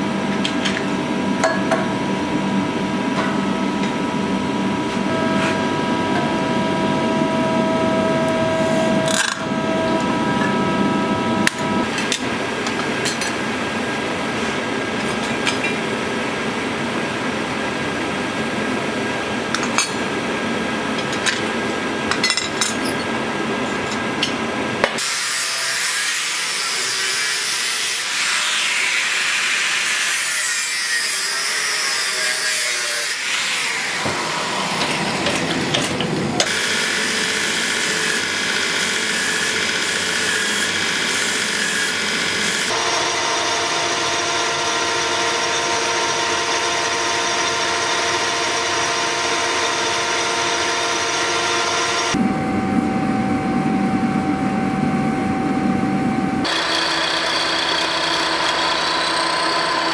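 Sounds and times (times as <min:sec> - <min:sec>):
forging machine motor hum: 0:56.5 - 0:59.9.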